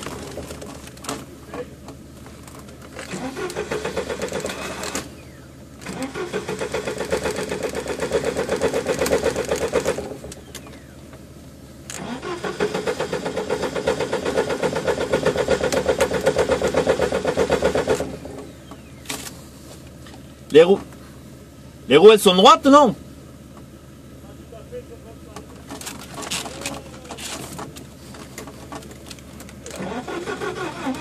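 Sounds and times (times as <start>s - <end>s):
engine cranking on starter motor: 0.0s - 1.3s, 1.9s - 11.0s, 11.8s - 19.4s, 25.6s - 31.0s.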